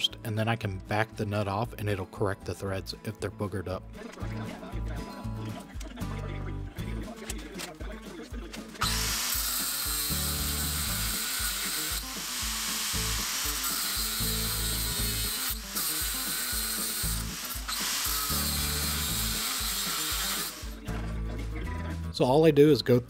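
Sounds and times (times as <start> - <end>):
power tool cutting steel rod: 8.8 - 20.8.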